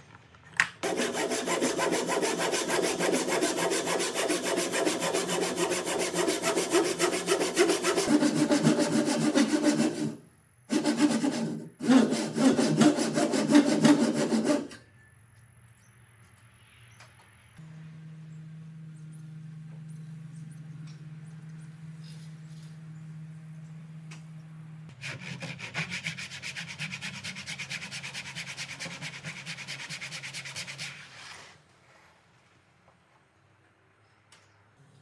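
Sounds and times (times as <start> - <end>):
hand saw ripping wood: 0.8 - 14.8.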